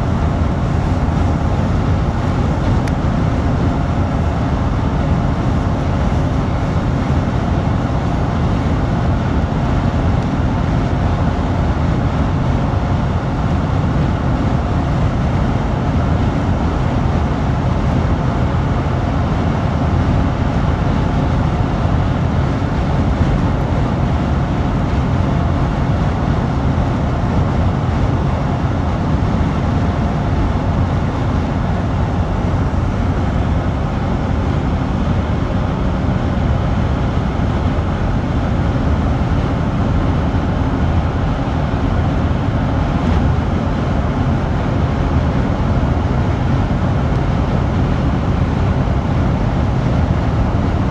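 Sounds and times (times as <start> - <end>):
car road noise inside car: 0.0 - 50.9
wind rush: 0.0 - 50.9.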